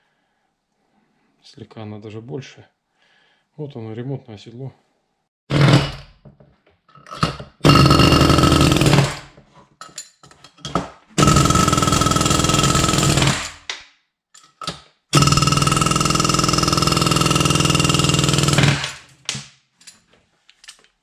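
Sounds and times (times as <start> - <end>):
pneumatic air hammer hammering: 7.2 - 9.3, 11.2 - 13.7, 14.6 - 19.1.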